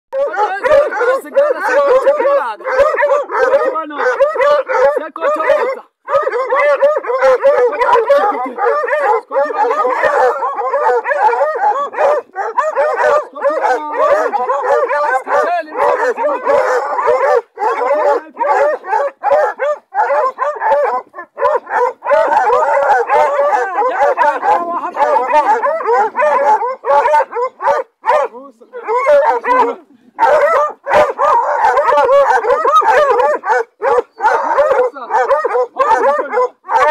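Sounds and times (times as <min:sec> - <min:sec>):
dogs yelping and barking: 0:00.2 - 0:36.9.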